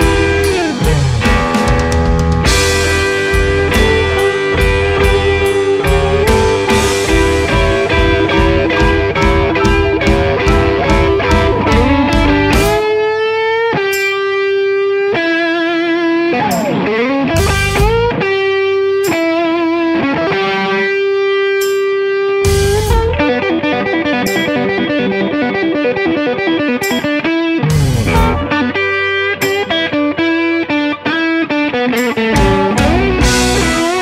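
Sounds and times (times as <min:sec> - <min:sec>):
electric blues band playing: 0:00.0 - 0:34.0
electric guitar notes with vibrato: 0:00.0 - 0:34.0.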